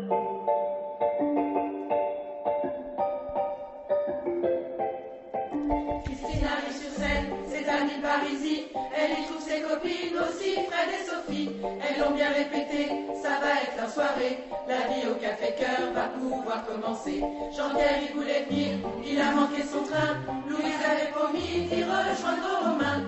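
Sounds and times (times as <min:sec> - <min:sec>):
piano accompaniment: 0:00.0 - 0:23.0
women's choir singing: 0:06.0 - 0:23.0.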